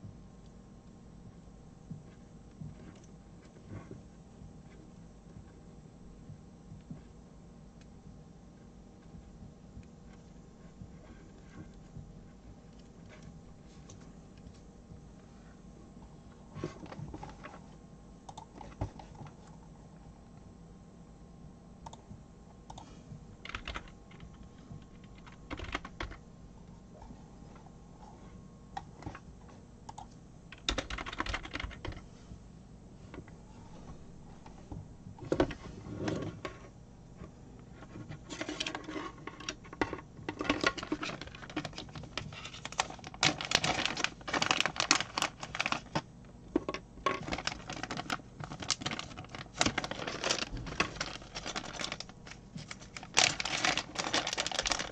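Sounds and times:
plastic bag handled: 0:40.4 - 0:46.1, 0:46.7 - 0:54.9
hands untwisting wires: 0:46.6 - 0:54.9.

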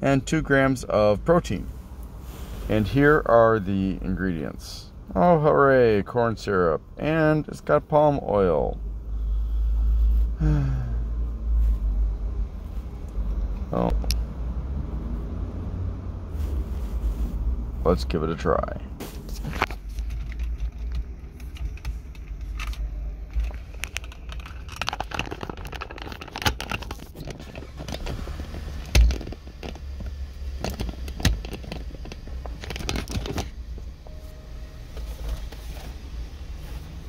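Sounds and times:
wrapper crinkling and tearing: 0:23.6 - 0:27.7.

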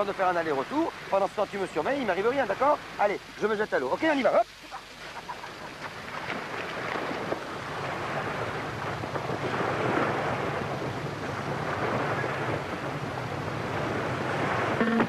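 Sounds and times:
sea surf: 0:00.0 - 0:15.0
wind buffeting microphone: 0:05.8 - 0:14.8.

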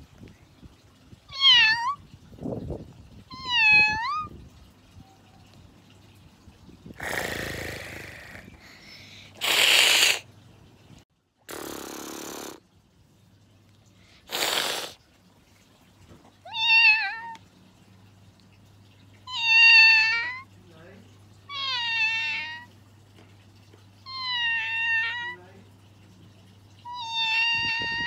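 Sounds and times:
cat meowing: 0:01.3 - 0:02.0, 0:03.3 - 0:04.3, 0:16.5 - 0:17.4, 0:19.3 - 0:20.4, 0:21.5 - 0:22.7, 0:24.1 - 0:25.4, 0:26.9 - 0:28.0
short hissing bursts: 0:07.0 - 0:10.3, 0:11.5 - 0:12.6, 0:14.2 - 0:15.0.

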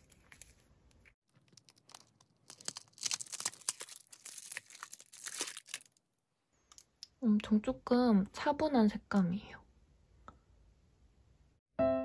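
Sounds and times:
tape crackling and peeling: 0:01.3 - 0:06.0.

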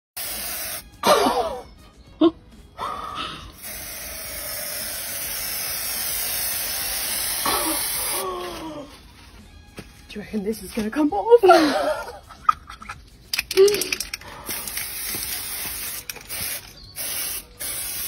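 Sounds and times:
spray paint can hissing: 0:00.2 - 0:01.0, 0:03.5 - 0:08.6, 0:13.3 - 0:18.0.

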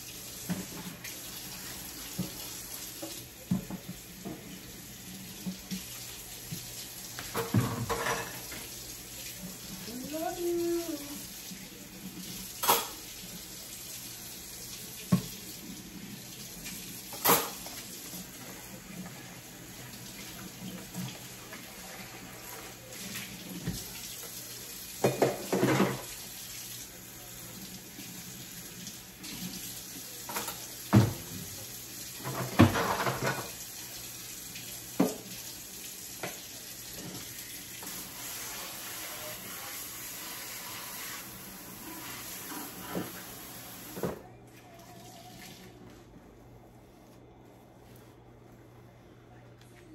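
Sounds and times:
faucet running into sink: 0:00.0 - 0:44.2
dishes clattering: 0:07.3 - 0:08.6, 0:17.1 - 0:17.8, 0:25.0 - 0:26.1, 0:32.2 - 0:33.6.

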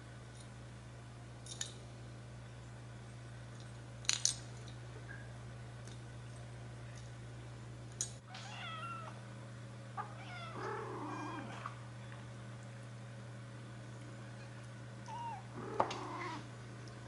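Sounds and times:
steady low hum: 0:00.0 - 0:17.0
kittens mewing: 0:10.0 - 0:11.8, 0:15.0 - 0:16.5.

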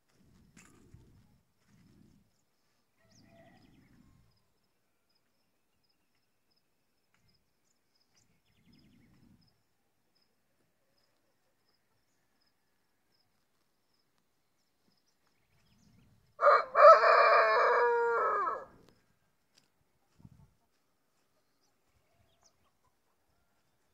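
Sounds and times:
rooster crowing: 0:03.0 - 0:03.8, 0:16.4 - 0:18.7.

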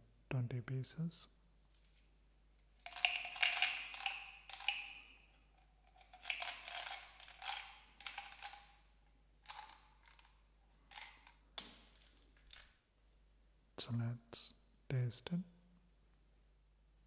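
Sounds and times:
gum pellets rattling in plastic tub: 0:02.8 - 0:04.9, 0:05.9 - 0:08.7.

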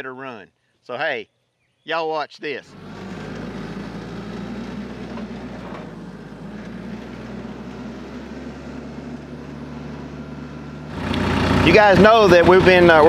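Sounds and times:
tractor diesel engine running: 0:02.7 - 0:13.0.

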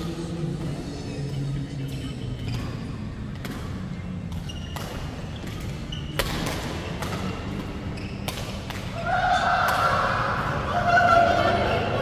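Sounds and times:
rackets striking shuttlecock: 0:02.5 - 0:09.0.

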